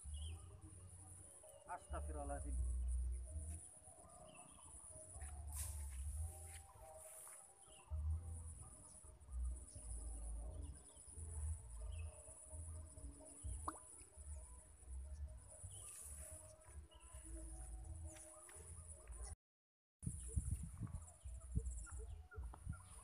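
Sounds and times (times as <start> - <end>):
wind buffeting microphone: 20.0 - 23.0.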